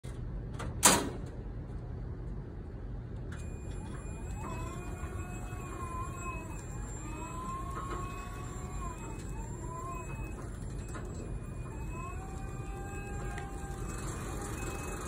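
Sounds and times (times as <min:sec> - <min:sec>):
electric motors whining: 0:03.4 - 0:15.0.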